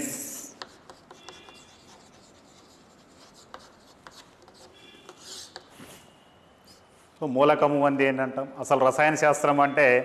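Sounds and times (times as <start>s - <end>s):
chalk scratching on chalkboard: 0.5s - 5.9s.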